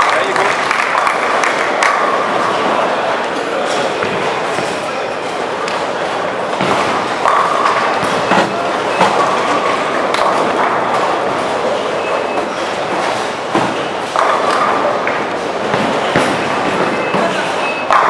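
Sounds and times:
bowling balls rolling: 0.6s - 18.0s
balls crashing into pins: 3.7s - 18.0s.

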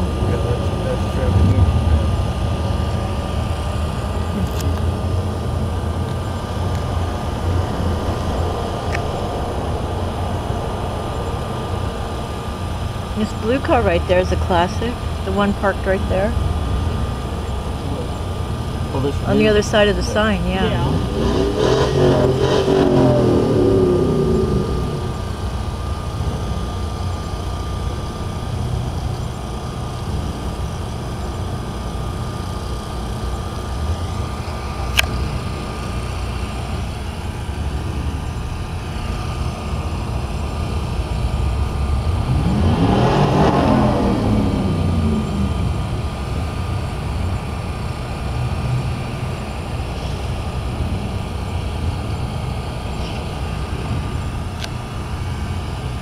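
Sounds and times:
vehicle passing by: 0.0s - 3.6s, 17.0s - 25.7s
car engine rumble: 0.0s - 56.0s.

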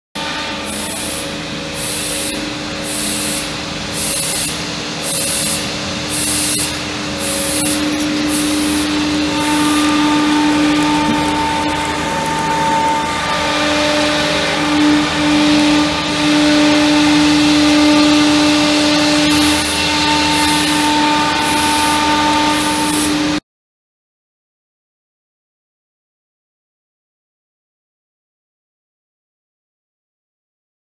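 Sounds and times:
higher machine tone: 0.2s - 23.4s
machine hissing noise: 0.2s - 23.4s
spindle whine: 0.2s - 23.4s.

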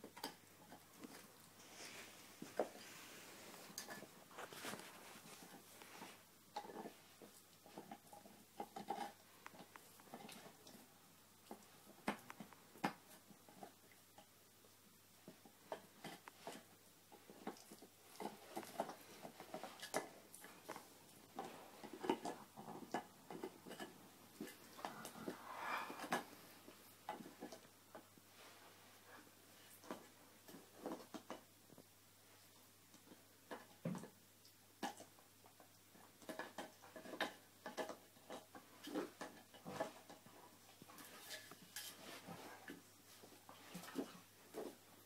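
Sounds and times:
dog gnawing antler: 2.4s - 14.0s, 15.2s - 27.7s
dog gnawing antler chew: 15.2s - 26.3s.

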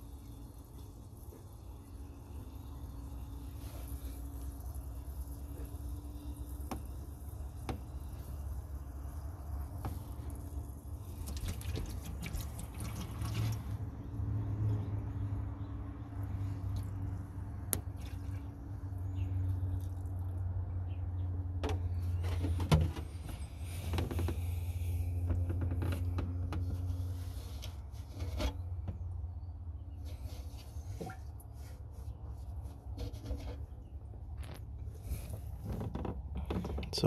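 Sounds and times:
water gurgling into a tank: 0.0s - 14.2s.

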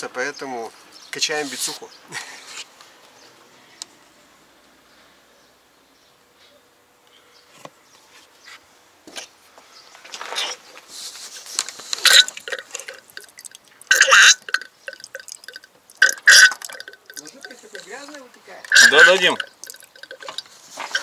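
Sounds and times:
fluid sputtering and gurgling: 12.0s - 21.0s.

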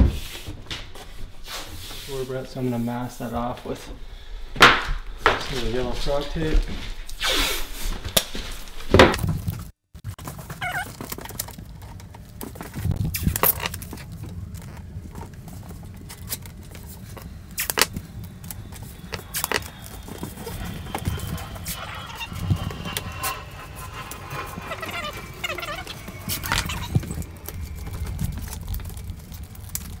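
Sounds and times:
tape handling clicks and rustles: 9.2s - 21.4s.

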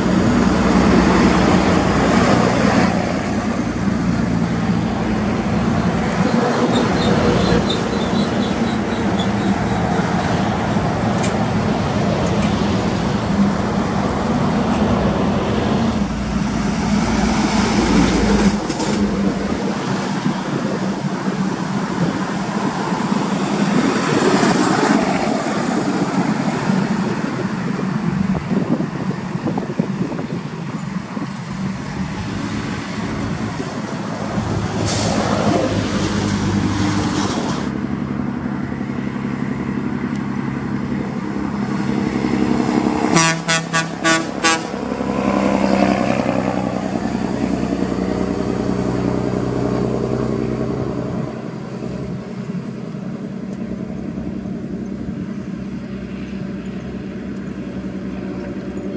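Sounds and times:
truck diesel engine passing: 0.0s - 58.9s
truck horn short toots: 43.1s - 44.8s.

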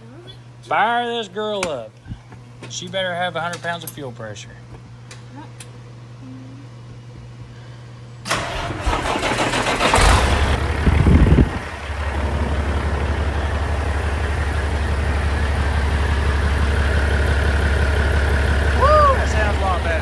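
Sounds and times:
starter motor cranking: 8.3s - 10.6s
diesel engine revving and idling: 8.3s - 20.0s.

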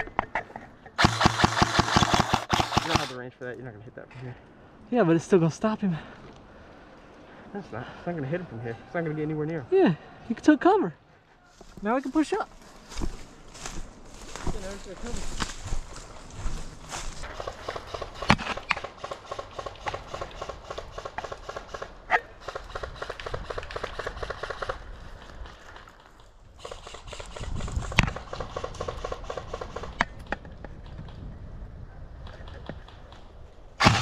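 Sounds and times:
sharp cracks and knocks: 0.0s - 3.1s, 17.3s - 21.9s
footsteps crunching through dry leaves: 11.6s - 17.3s.

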